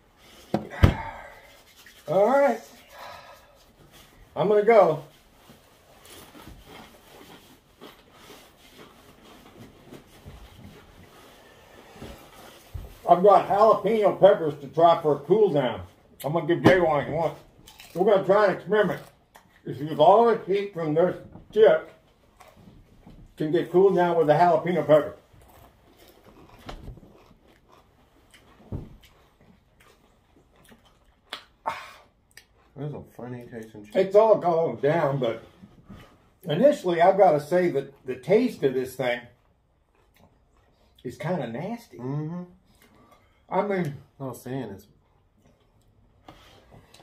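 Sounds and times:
person chewing chip: 17.6 - 18.1, 25.4 - 32.8, 39.8 - 41.0
chip crunching: 17.6 - 18.3.

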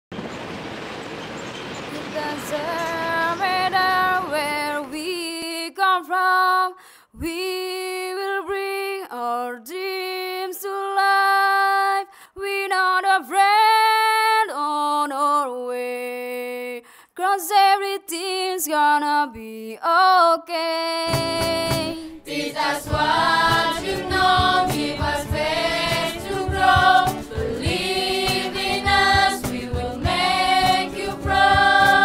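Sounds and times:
street traffic hiss: 0.2 - 5.1, 21.2 - 32.0
girl singing unaccompanied: 1.9 - 32.0.

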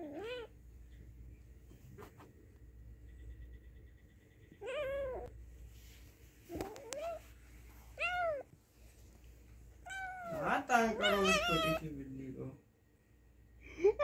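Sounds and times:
kitten meowing: 11.0 - 11.8.

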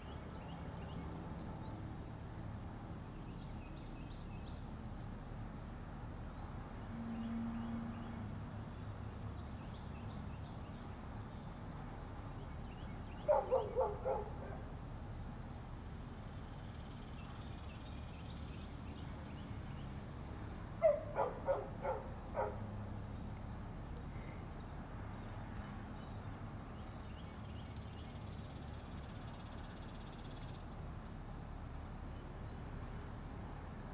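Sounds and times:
high insect buzz: 0.0 - 18.6
dog yipping: 13.3 - 14.5, 20.8 - 22.6.

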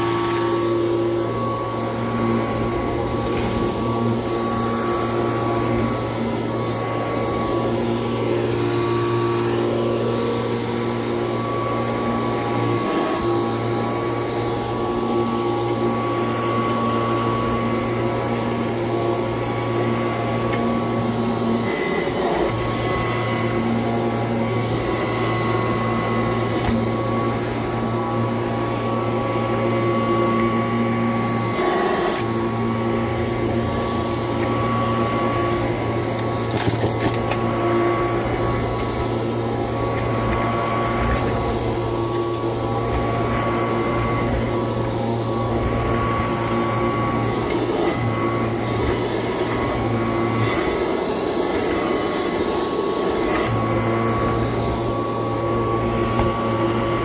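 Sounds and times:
upright vacuum cleaner running: 0.0 - 57.0
debris crackling in vacuum: 33.1 - 50.8.

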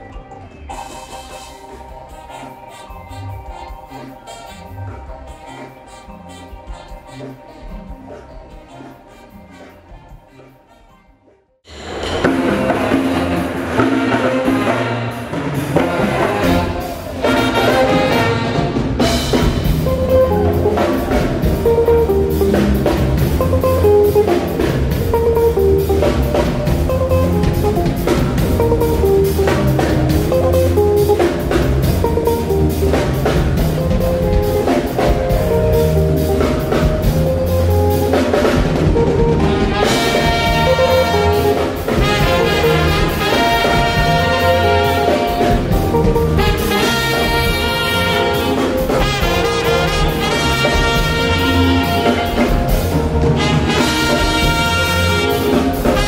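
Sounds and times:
bass guitar: 0.0 - 11.1, 11.7 - 56.0
drum kit: 0.0 - 11.1, 11.7 - 56.0
electric guitar: 11.7 - 56.0.

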